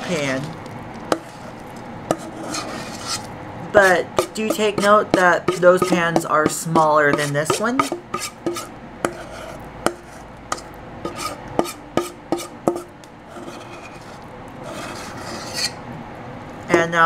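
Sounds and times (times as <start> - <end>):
utensil scraping bowl: 0.0 - 15.8
utensil knocking on metal bowl: 4.2 - 9.2.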